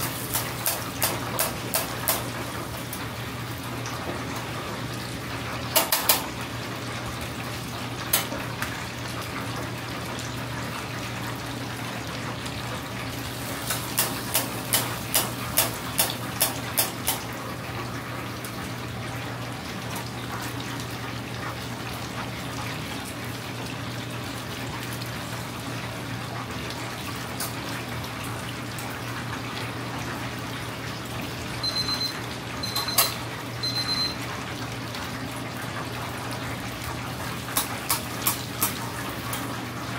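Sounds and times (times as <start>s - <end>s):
oil sizzling in a deep fryer: 0.0s - 39.9s
short high beeps: 31.6s - 34.2s.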